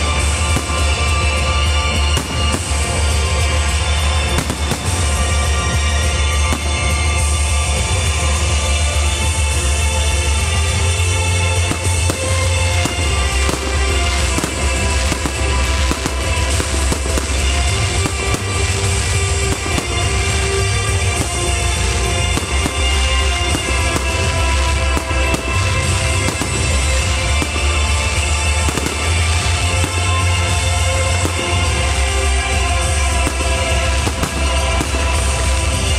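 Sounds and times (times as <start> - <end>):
fireworks bursting and crackling: 0.0 - 35.9
loud music with heavy bass: 0.0 - 35.9.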